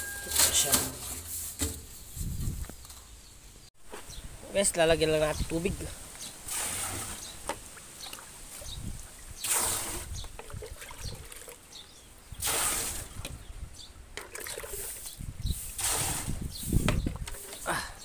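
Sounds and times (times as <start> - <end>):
water pouring and splashing: 6.4 - 13.4, 14.2 - 17.7.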